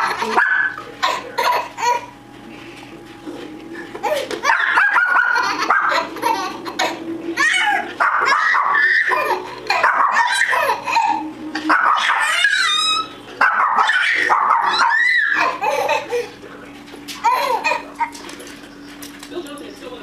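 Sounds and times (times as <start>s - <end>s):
baby laughing: 0.0s - 2.1s, 4.0s - 13.1s, 13.9s - 16.3s, 17.2s - 18.2s
small dog barking: 0.3s - 0.8s, 4.4s - 6.1s, 8.0s - 9.2s, 9.8s - 10.5s, 11.7s - 12.8s, 13.4s - 15.6s.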